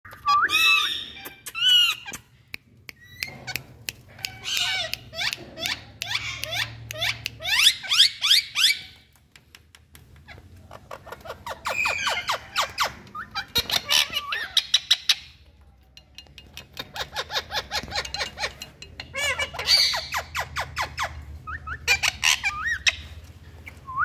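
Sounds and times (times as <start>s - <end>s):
parakeets squeaking: 0.1s - 2.3s, 3.0s - 9.1s, 10.2s - 23.8s.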